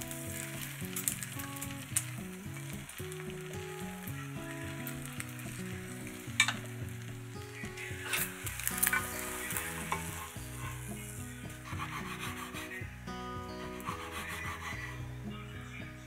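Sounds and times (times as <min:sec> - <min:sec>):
egg sizzling in a pan: 0:00.0 - 0:15.2
chopsticks clicking against pan: 0:06.4 - 0:06.7.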